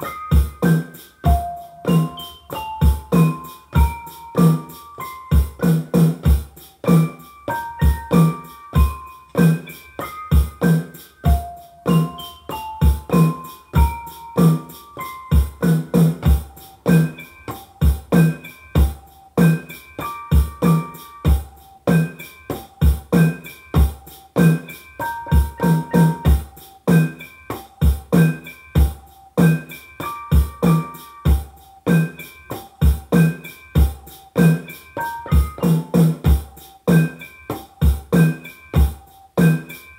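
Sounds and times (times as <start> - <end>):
kick drum beat: 0.0 - 4.7, 5.3 - 14.7, 15.3 - 24.6, 25.2 - 29.6, 30.3 - 32.1, 32.8 - 34.6, 35.3 - 39.6
clicky percussion: 0.0 - 39.9
keyboard melody: 0.0 - 39.9.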